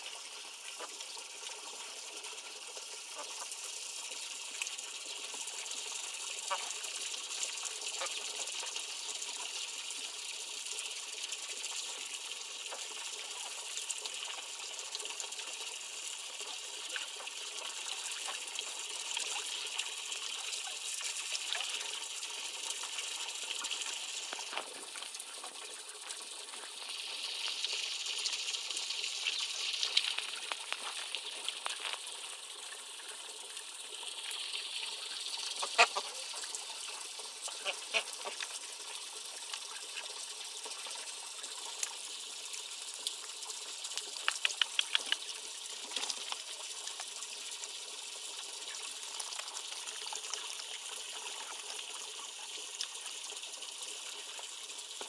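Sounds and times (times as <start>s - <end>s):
water trickling into pond: 0.0s - 55.0s
ducks splashing: 35.5s - 36.4s, 37.5s - 38.4s.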